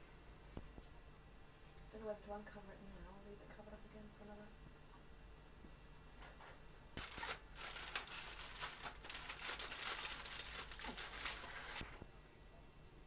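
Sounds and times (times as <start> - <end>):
aluminium foil crinkling: 7.0 - 12.0.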